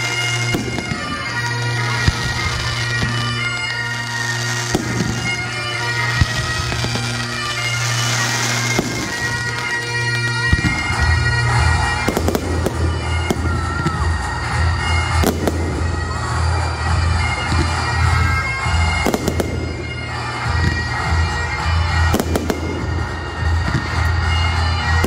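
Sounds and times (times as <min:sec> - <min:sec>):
bagpipe music with drone: 0:00.0 - 0:25.0
fireworks bangs: 0:00.0 - 0:25.0.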